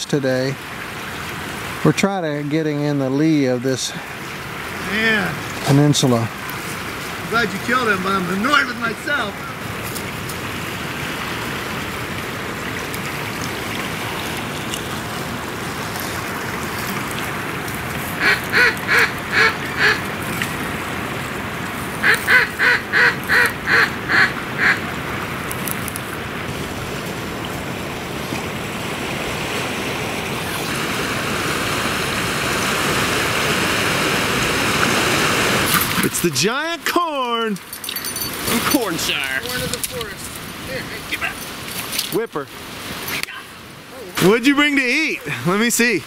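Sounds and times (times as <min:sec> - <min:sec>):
waves: 0:00.0 - 0:46.0
wind: 0:00.0 - 0:46.0
duck quacks: 0:18.2 - 0:20.0, 0:22.0 - 0:24.8.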